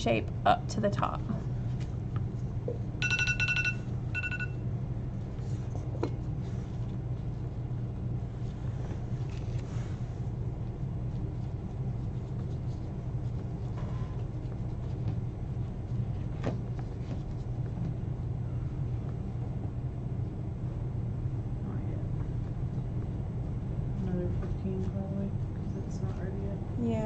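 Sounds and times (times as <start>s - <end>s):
steady low hum: 0.0s - 27.0s
electronic timer beeping: 3.0s - 4.6s.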